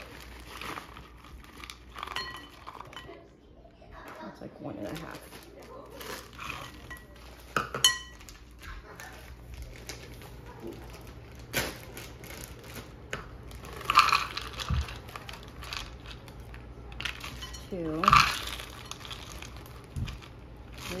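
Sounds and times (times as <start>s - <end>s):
dishes clinking against bowl: 2.0s - 3.2s, 6.6s - 8.4s.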